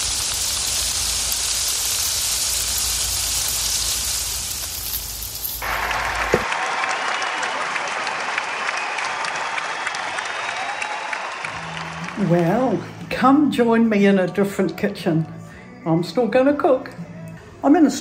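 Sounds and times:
ribs sizzling on a grill: 0:00.0 - 0:06.0
applause: 0:05.6 - 0:13.0.

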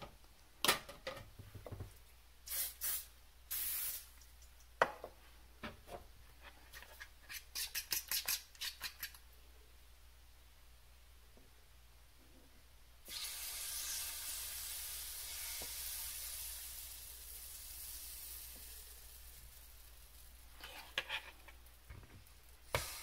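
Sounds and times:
batter sizzling on hot plate: 0:13.0 - 0:23.0.

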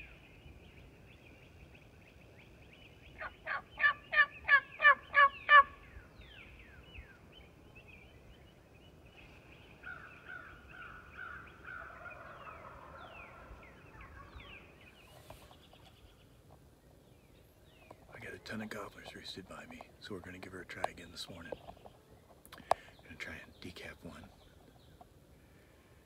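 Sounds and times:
songbird chirps: 0:00.0 - 0:26.0
wild turkey yelps: 0:03.2 - 0:05.8, 0:09.8 - 0:14.7.

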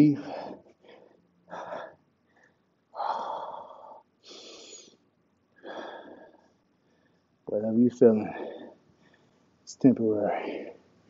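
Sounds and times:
man breathing hard: 0:00.1 - 0:05.0, 0:05.6 - 0:07.4, 0:08.2 - 0:09.6, 0:10.3 - 0:10.9.

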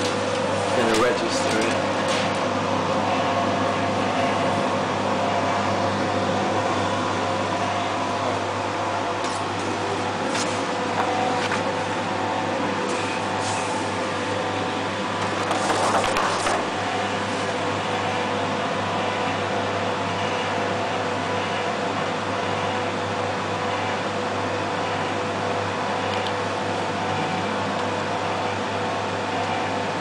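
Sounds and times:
electric machine hum: 0:00.0 - 0:30.0
paper sheets rustling: 0:11.3 - 0:11.7, 0:15.2 - 0:16.7.

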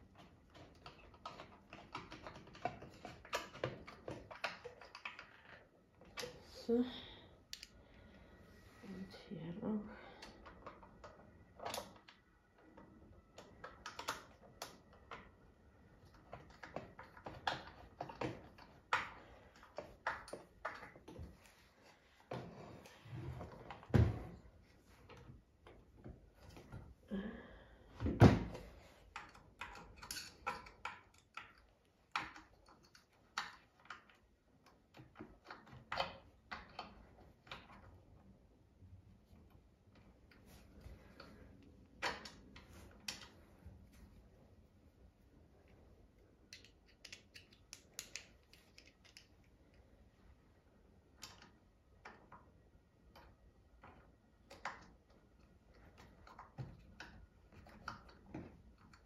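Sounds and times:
metal parts clicking on metal casing: 0:29.0 - 0:37.9, 0:46.5 - 0:49.5.

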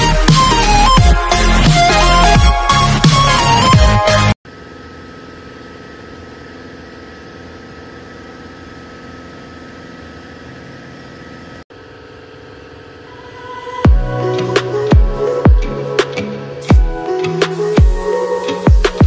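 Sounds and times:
machine humming: 0:04.5 - 0:19.0.

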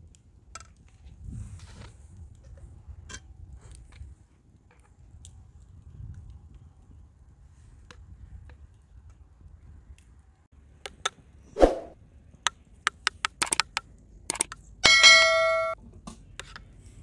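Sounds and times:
loud metallic ring: 0:14.8 - 0:15.8.

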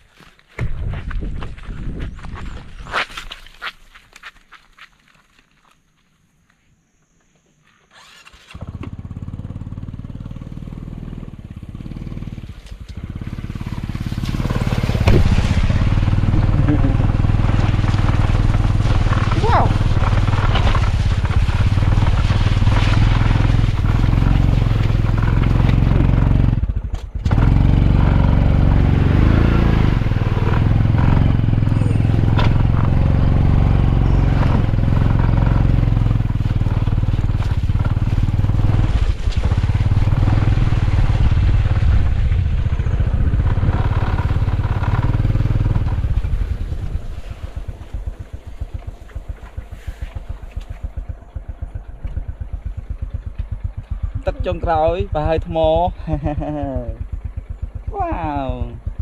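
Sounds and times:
motorcycle engine running: 0:08.4 - 0:59.0.

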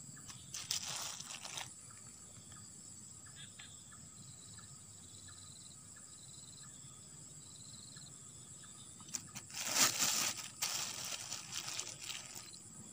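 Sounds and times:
faint insect chirping: 0:00.0 - 0:12.9
plastic bag crinkling: 0:00.3 - 0:01.7, 0:09.1 - 0:12.6.

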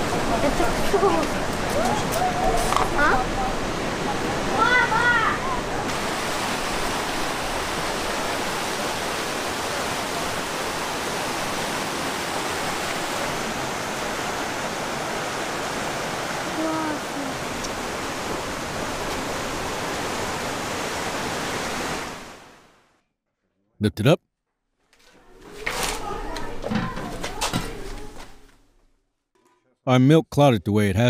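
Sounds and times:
river rushing over rocks: 0:00.0 - 0:22.5.

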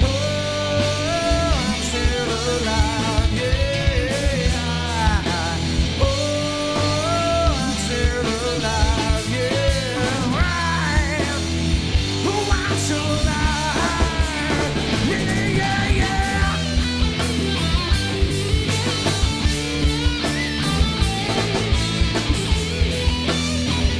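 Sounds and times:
male singer: 0:00.0 - 0:16.8
bass guitar: 0:00.0 - 0:23.9
electric guitars: 0:00.0 - 0:23.9
steady drum beat: 0:00.0 - 0:23.9.

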